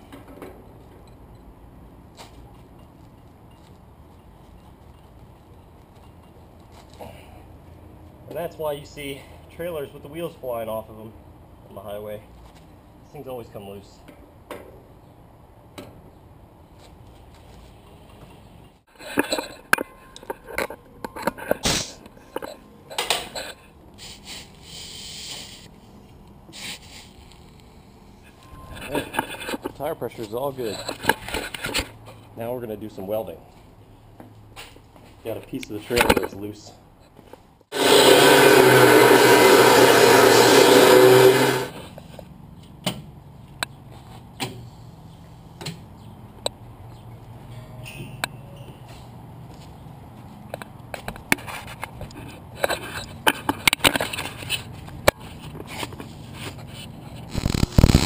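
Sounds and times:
compressed air hissing: 0:24.0 - 0:25.7
angle grinder grinding metal: 0:37.7 - 0:41.8, 0:57.3 - 0:58.0.

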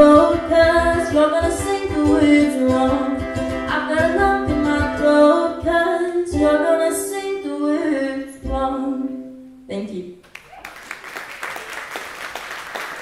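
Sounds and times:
woman singing into a microphone: 0:00.0 - 0:09.4.

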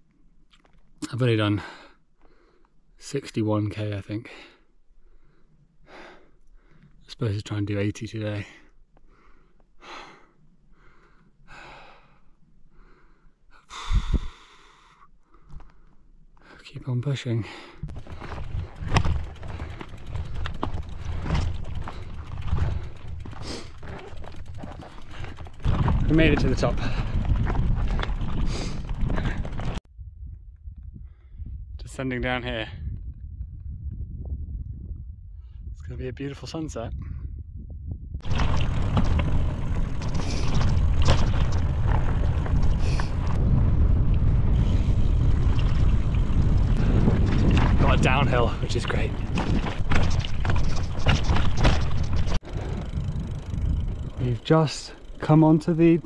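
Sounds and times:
bike freehub ticking: 0:17.9 - 0:26.2, 0:49.3 - 0:56.0
bike jolting over rocks: 0:17.9 - 0:29.8, 0:38.2 - 0:43.4, 0:44.5 - 0:56.0
tyres rumbling on dirt road: 0:17.9 - 0:29.8, 0:38.2 - 0:56.0
wind on microphone: 0:25.5 - 0:54.2.

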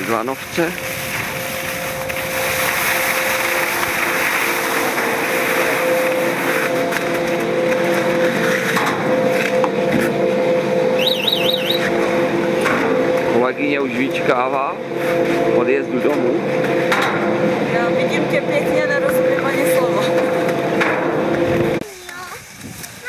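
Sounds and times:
chairlift machinery humming: 0:00.0 - 0:23.0
short high warbling beep: 0:11.0 - 0:11.9.

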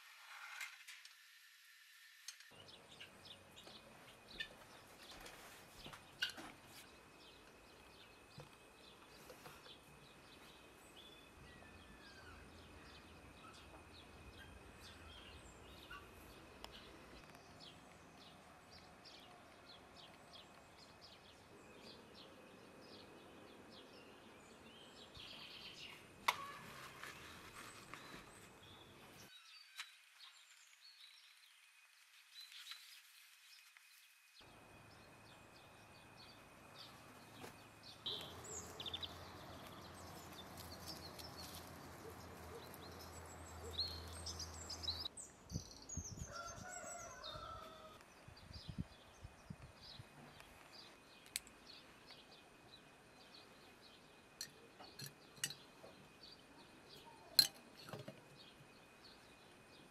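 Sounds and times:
small birds chirping: 0:02.5 - 0:59.9
rooster crowing: 0:46.2 - 0:48.0.

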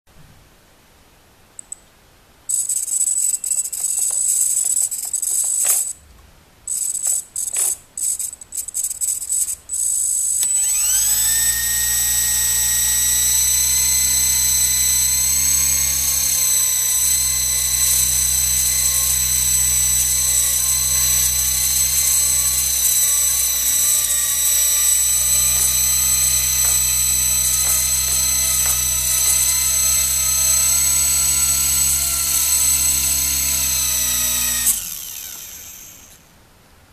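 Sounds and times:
high-pitched buzzing bursts: 0:02.5 - 0:06.0, 0:06.7 - 0:36.3
electric motor whine: 0:09.0 - 0:36.3.

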